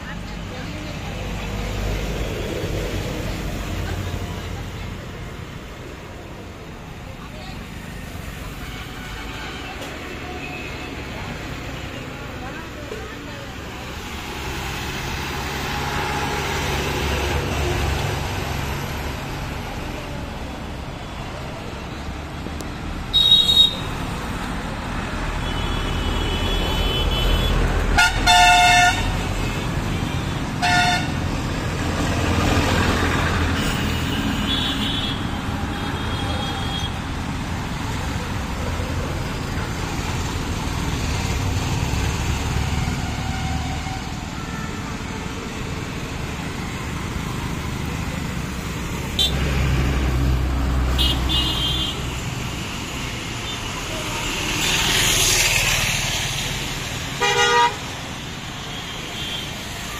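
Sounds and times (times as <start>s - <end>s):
passing city traffic: 0.0s - 59.9s
vehicle horns tooting: 23.1s - 24.0s, 25.4s - 31.2s, 51.0s - 52.0s, 57.2s - 57.8s.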